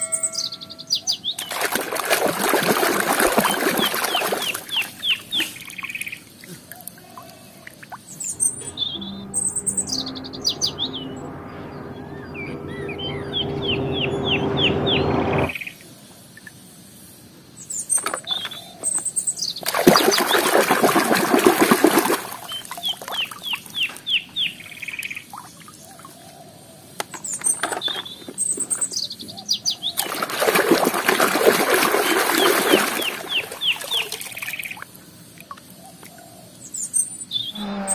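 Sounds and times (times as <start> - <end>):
hands splashing in muddy water: 1.4 - 5.5, 19.6 - 22.6, 30.0 - 34.6
truck engine running: 8.3 - 15.5.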